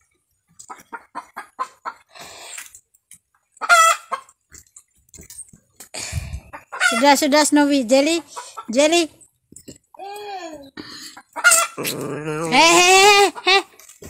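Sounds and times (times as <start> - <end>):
chicken clucking: 0.5 - 2.1, 3.4 - 4.6, 6.4 - 7.2, 11.0 - 13.8
chicken squawk: 3.6 - 4.2, 11.2 - 13.5.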